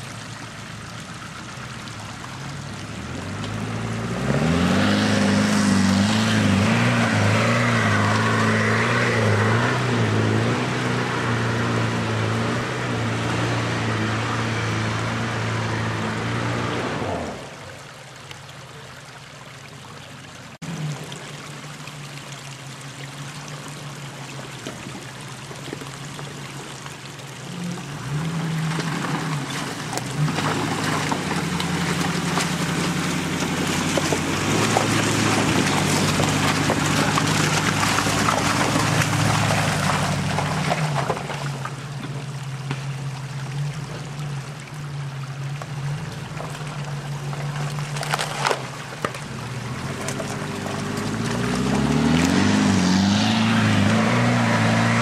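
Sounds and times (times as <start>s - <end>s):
off-road engine revving: 2.8s - 17.6s, 27.4s - 55.0s.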